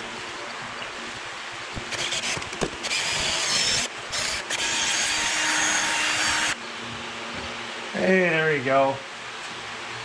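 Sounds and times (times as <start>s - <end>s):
cordless drill drilling metal: 1.9s - 6.6s.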